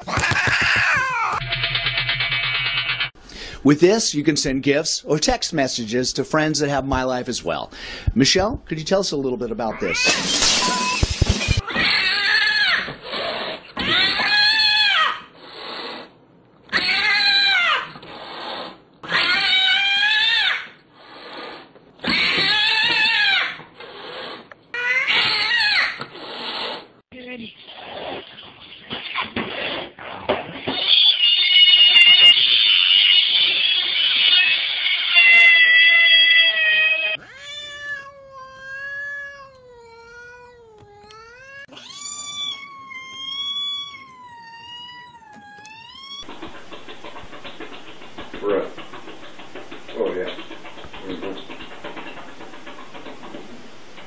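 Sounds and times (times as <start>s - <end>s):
cat yowling: 0.1s - 1.4s, 9.7s - 12.9s, 13.8s - 15.3s, 16.7s - 17.9s, 19.0s - 20.8s, 22.0s - 23.6s, 35.1s - 46.3s.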